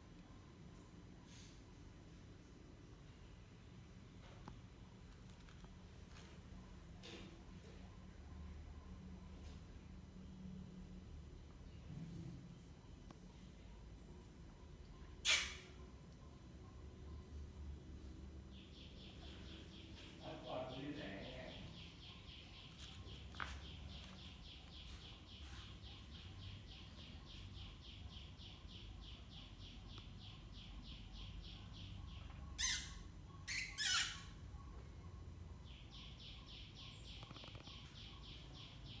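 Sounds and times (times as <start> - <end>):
rapid high-pitched chirping: 18.6 - 34.4.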